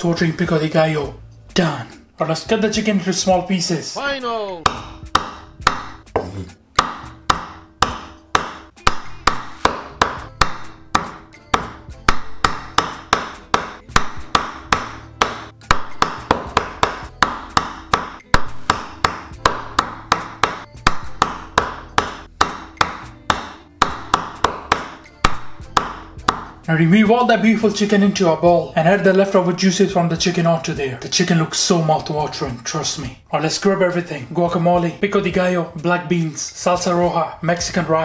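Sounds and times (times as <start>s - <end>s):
knife chopping on wooden board: 4.6s - 26.6s.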